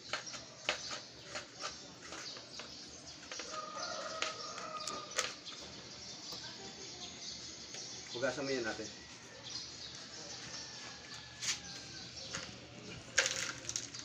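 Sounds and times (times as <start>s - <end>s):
tool digging soil in a pot: 0.0s - 5.4s
rooster crowing: 3.5s - 5.1s, 10.4s - 12.1s.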